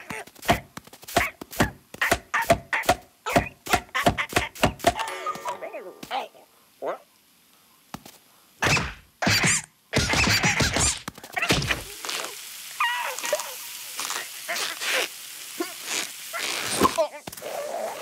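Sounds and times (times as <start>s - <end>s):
cartoon bird squeaky strained vocals: 8.6s - 13.6s.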